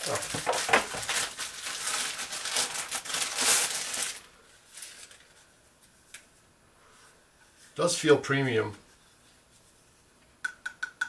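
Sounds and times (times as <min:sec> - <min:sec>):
plastic wrapping crinkling: 0:00.0 - 0:05.5.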